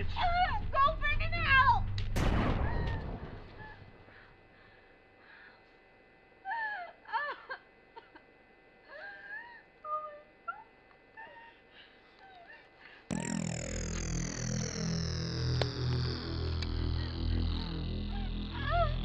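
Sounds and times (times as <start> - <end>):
loud falling tones: 2.2 - 4.2, 13.1 - 19.0
woman whimpering and sobbing: 6.4 - 8.2, 8.9 - 13.1, 18.1 - 19.0.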